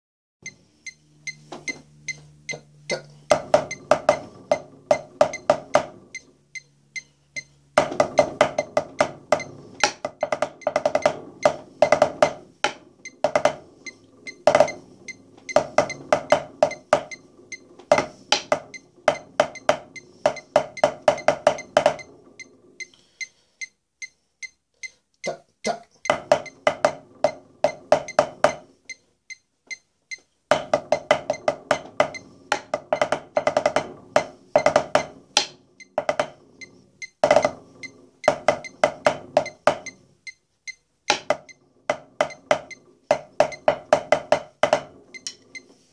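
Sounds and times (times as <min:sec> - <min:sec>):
drumsticks on practice pad: 0:00.4 - 0:22.2, 0:38.2 - 0:45.6.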